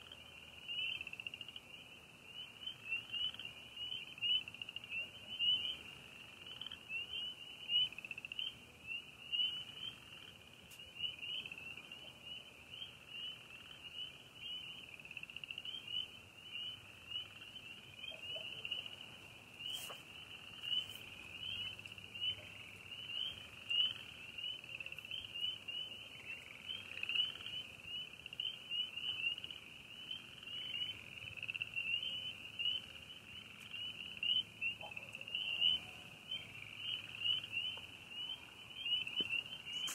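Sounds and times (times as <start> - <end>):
frogs calling: 0.0 - 39.9.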